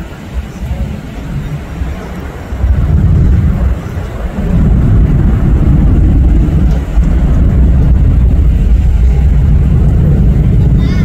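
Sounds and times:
jet engines deep rumble: 0:00.0 - 0:11.0.

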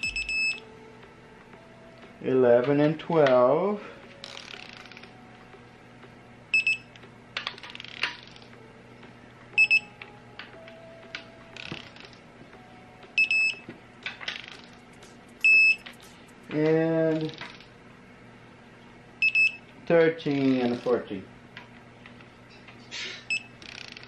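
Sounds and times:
torque wrench beeping: 0:00.0 - 0:00.6, 0:15.4 - 0:15.9.

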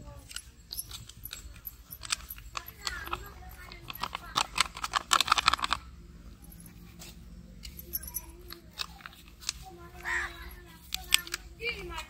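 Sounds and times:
low background rumble: 0:00.0 - 0:12.0
plastic packet crinkling: 0:02.0 - 0:05.8.

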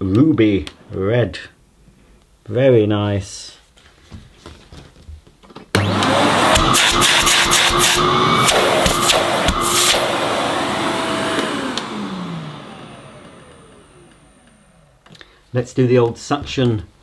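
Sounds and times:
falling motor whine: 0:05.8 - 0:15.0
vacuum cleaner running: 0:05.8 - 0:15.1.

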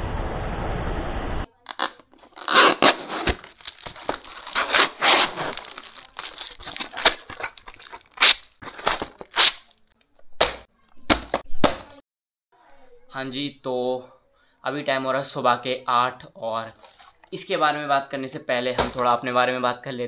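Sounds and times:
paper wrapping tearing and crumpling: 0:01.6 - 0:09.9.

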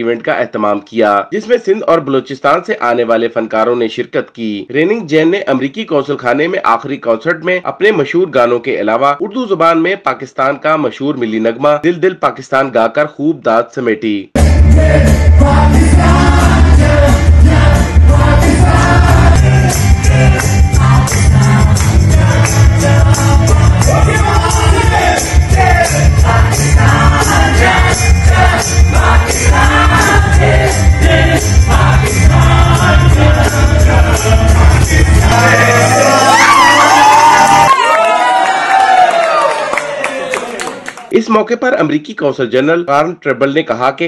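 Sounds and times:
band music with group singing: 0:14.4 - 0:37.7.

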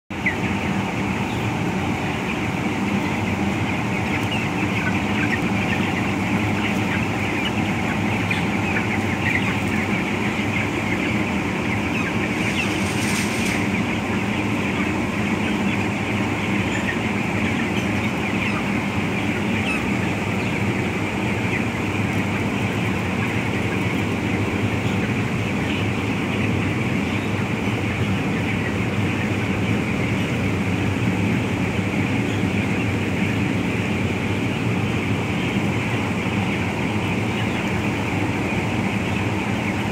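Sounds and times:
chickens peeping and clucking: 0:00.1 - 0:39.9
ventilation fans humming: 0:00.1 - 0:39.9.

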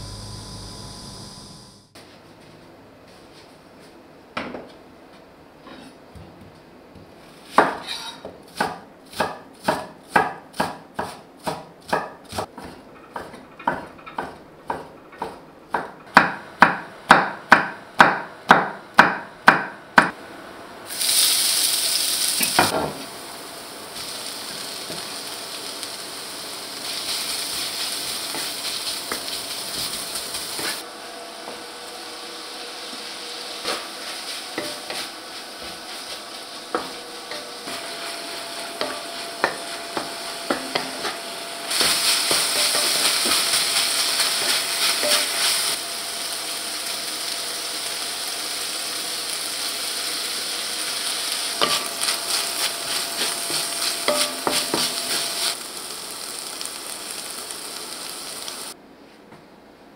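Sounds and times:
food sizzling in a wok: 0:00.0 - 0:02.0, 0:20.8 - 0:58.8
wooden spatula scraping a pan: 0:05.6 - 0:06.0, 0:07.3 - 0:08.2, 0:33.0 - 0:45.8, 0:51.5 - 0:55.6.

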